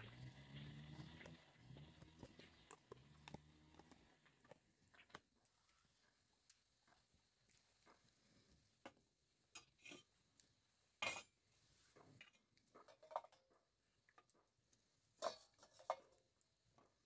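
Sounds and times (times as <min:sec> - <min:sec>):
clinks and knocks of cups and bowl: 0:11.0 - 0:11.4, 0:12.2 - 0:14.3, 0:15.2 - 0:16.2.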